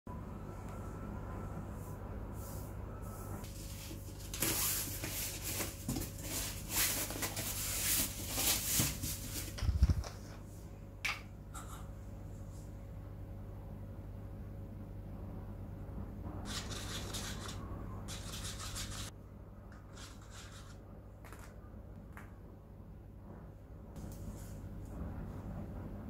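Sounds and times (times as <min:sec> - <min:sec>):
steady low hum: 0:00.1 - 0:26.0
cardboard scraping and rustling: 0:03.5 - 0:10.1.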